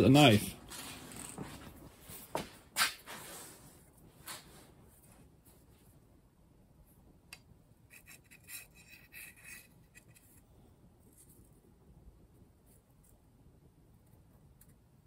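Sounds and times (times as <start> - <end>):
handle scraping on knife tang: 7.9 - 10.4.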